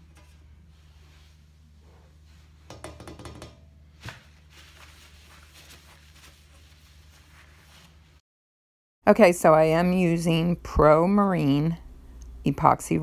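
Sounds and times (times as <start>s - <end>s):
knocks on plexiglass: 2.7s - 3.7s
paper towel rubbing plexiglass: 3.8s - 8.2s.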